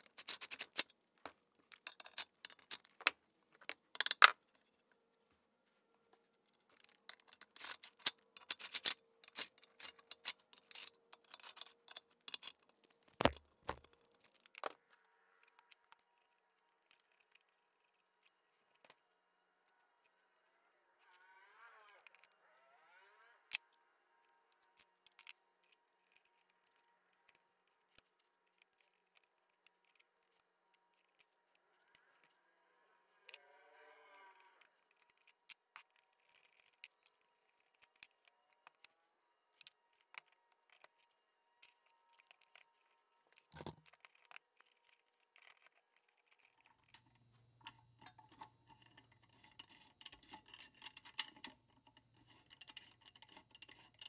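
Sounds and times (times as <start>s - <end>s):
small metal parts clicking: 0.0s - 4.6s, 6.4s - 38.9s, 39.5s - 54.0s.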